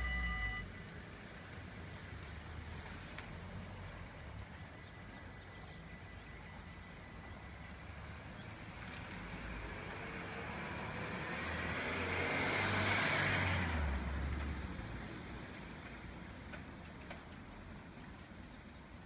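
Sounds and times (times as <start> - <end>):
car passing by: 7.4 - 16.4.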